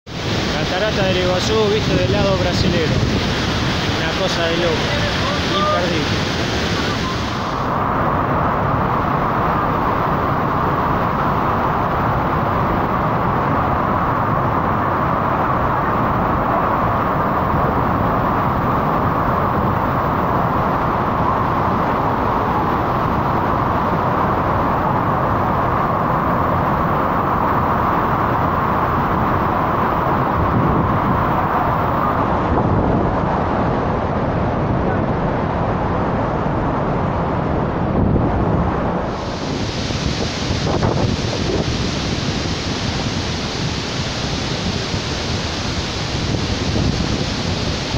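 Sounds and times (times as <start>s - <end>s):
waterfall rushing: 0.1s - 35.7s, 38.6s - 47.9s.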